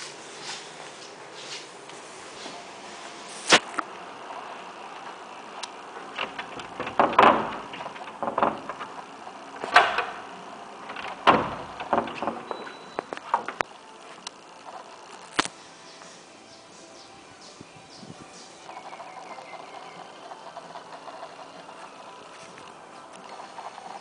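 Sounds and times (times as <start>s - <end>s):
glass doors scuffing and rattling: 5.9s - 13.7s.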